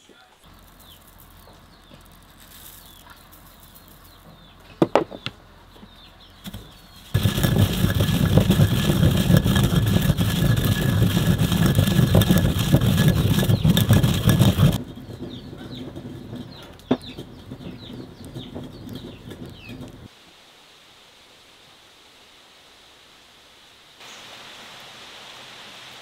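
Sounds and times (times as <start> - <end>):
birds chirping: 0.0 - 20.1
wood fire crackling: 0.4 - 4.8, 5.4 - 20.1
stone pestle grinding seeds: 6.4 - 20.1.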